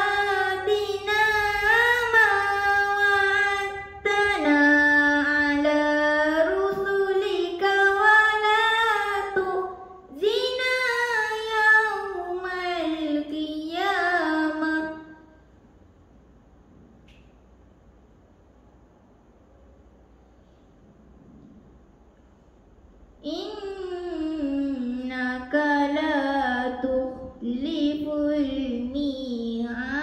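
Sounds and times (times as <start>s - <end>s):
girl reciting melodically: 0.0s - 15.5s, 23.2s - 30.0s.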